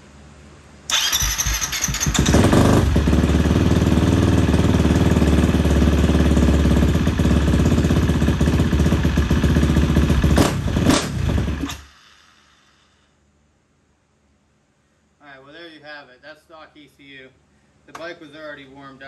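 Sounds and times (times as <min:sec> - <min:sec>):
dirt bike engine starting and running: 0:00.9 - 0:12.4
sharp exhaust pop: 0:10.1 - 0:12.2.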